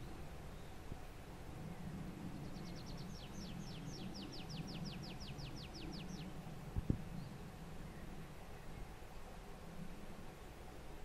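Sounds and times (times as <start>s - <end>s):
low background rumble: 0.0s - 11.0s
songbird trilling: 2.4s - 6.4s.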